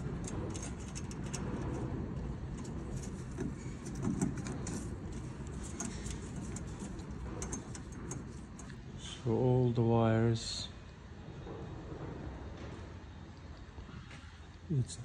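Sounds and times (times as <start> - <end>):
wire ticking and rustling: 0.0 - 9.0
steady low rumble: 0.0 - 13.9.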